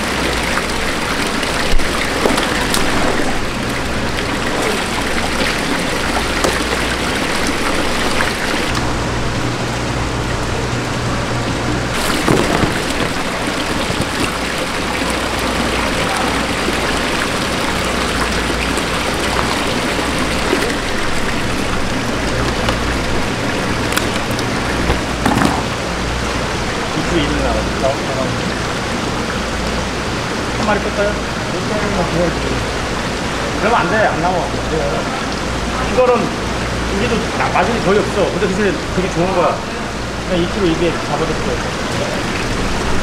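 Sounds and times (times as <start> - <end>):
water pouring into tank: 0.0 - 8.8, 11.9 - 27.1.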